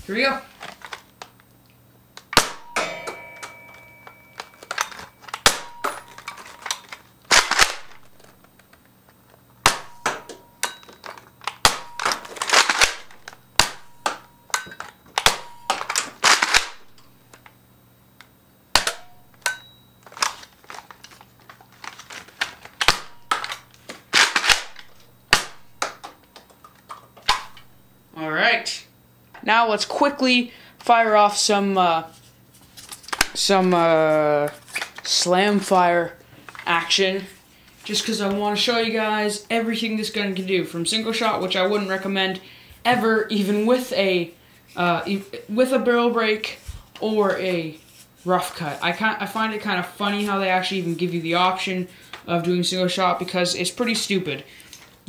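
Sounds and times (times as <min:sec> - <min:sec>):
dart blaster pops: 0:02.3 - 0:02.9, 0:05.4 - 0:05.7, 0:09.6 - 0:10.2, 0:11.6 - 0:12.2, 0:25.3 - 0:26.0
brief ringing tone: 0:02.6 - 0:04.7.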